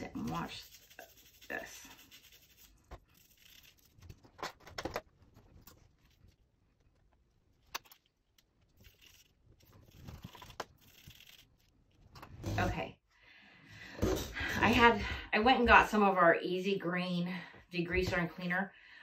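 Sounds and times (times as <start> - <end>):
brush scrubbing nozzle: 0.0 - 4.0, 8.7 - 11.7.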